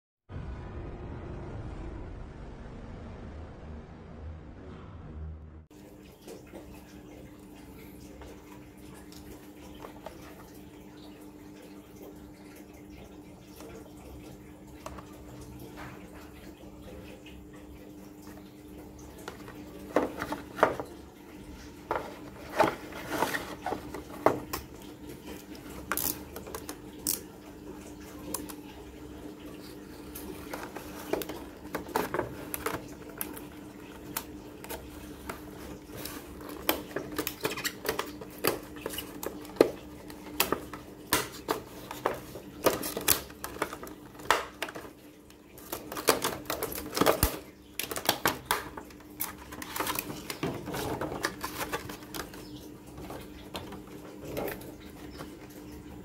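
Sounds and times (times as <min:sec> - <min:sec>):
steady low hum: 0:00.3 - 0:06.2
plastic packaging crackling: 0:29.6 - 0:52.4.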